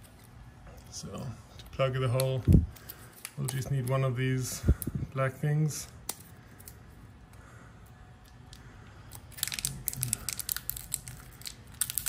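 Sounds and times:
plastic backing strip crinkling: 1.6s - 5.0s, 8.2s - 12.0s.

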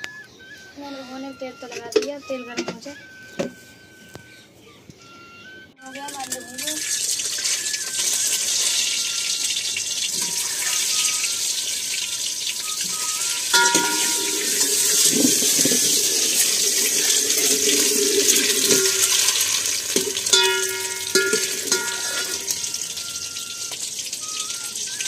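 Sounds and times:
eggs frying in hot oil: 6.0s - 25.0s
ladle scraping pot: 13.0s - 22.8s
ladle clinking against pot: 13.5s - 16.0s, 18.2s - 22.8s.

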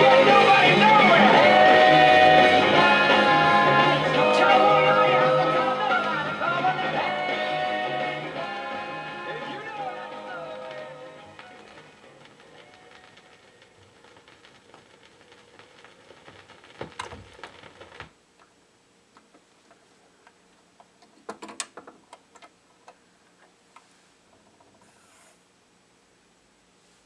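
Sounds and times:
faint song from vinyl record: 0.0s - 27.0s
vinyl surface hiss: 0.0s - 27.0s
vinyl ticks and clicks: 8.1s - 18.5s.

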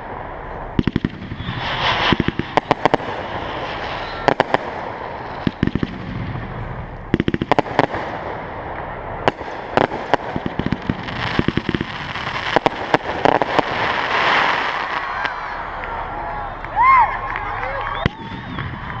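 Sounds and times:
fireworks crackling: 0.0s - 19.0s
fireworks shells bursting: 0.8s - 6.2s.

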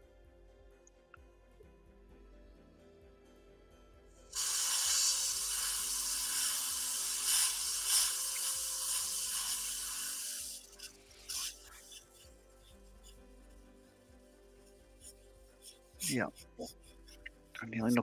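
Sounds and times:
faint background music: 0.0s - 18.0s
loud hiss: 4.3s - 11.7s.

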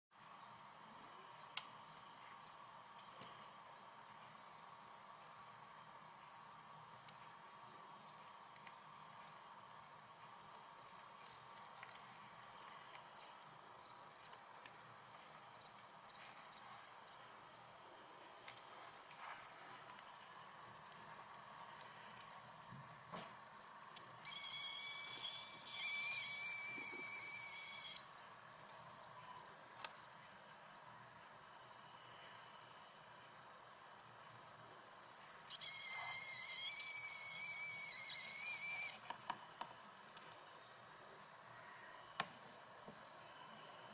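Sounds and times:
cricket chirping: 0.2s - 1.2s, 1.9s - 6.6s, 10.3s - 14.4s, 20.0s - 22.8s, 23.5s - 30.9s, 31.5s - 39.6s, 41.9s - 42.1s
insect buzzing trill: 24.3s - 28.2s, 35.3s - 39.0s.

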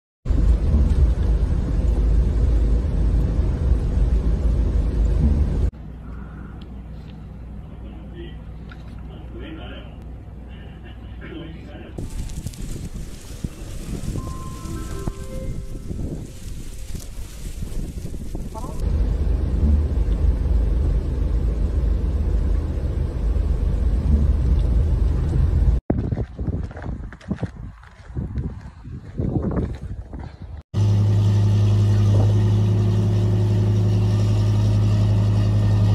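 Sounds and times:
wind rumbling: 0.3s - 5.7s, 12.0s - 30.6s
car driving on snowy road: 12.0s - 25.8s, 30.8s - 35.9s.

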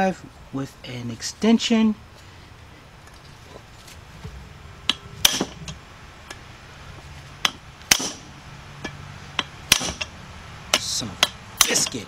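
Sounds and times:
hammer striking metal socket: 10.7s - 12.0s.

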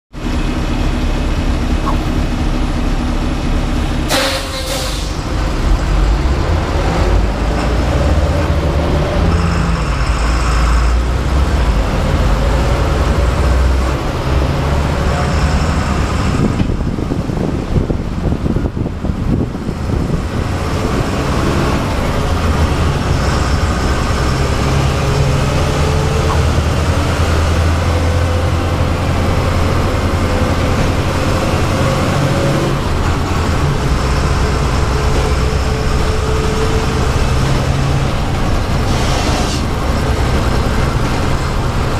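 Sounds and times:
bus diesel engine running: 0.1s - 41.9s
air brakes hissing: 4.1s - 5.4s.

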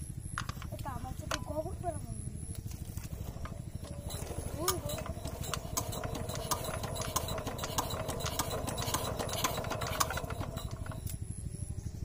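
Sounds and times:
small engine chugging: 0.0s - 12.0s
clattering ticks: 3.1s - 11.2s.

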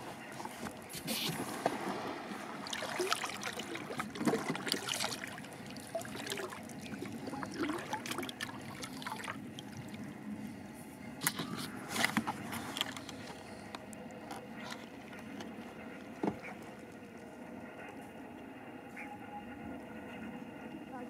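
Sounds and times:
water splashing and trickling: 0.4s - 10.3s.

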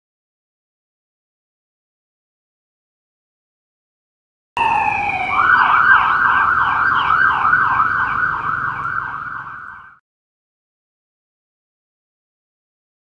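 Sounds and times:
police siren: 4.6s - 10.0s.

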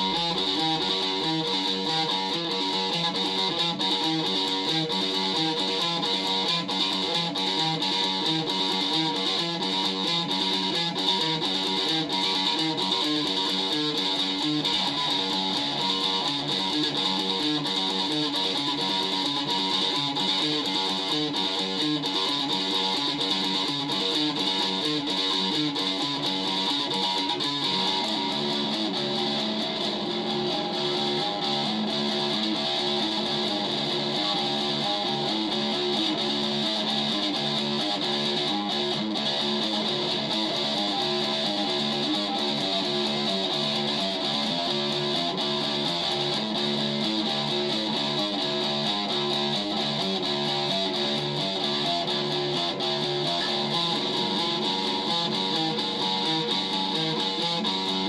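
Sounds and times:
guitar playing: 0.0s - 58.0s.

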